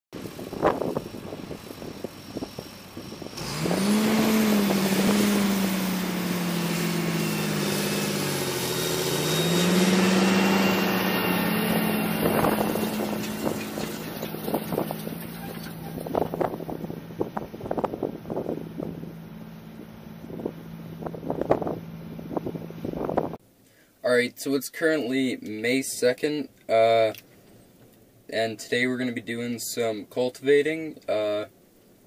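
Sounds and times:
tractor diesel engine under load: 0.1s - 23.4s.

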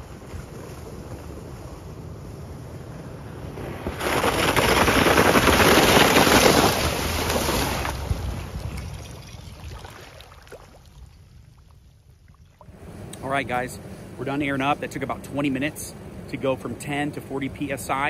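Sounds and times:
tyres splashing through water: 3.5s - 12.8s.

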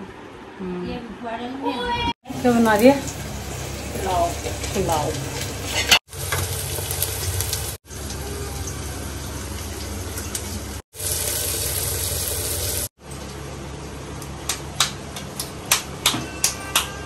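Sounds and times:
food sizzling in pot: 2.3s - 12.9s.

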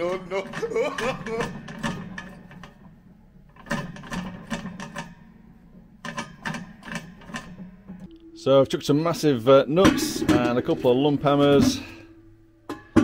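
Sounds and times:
metallic clicking and rattling: 0.0s - 8.2s.

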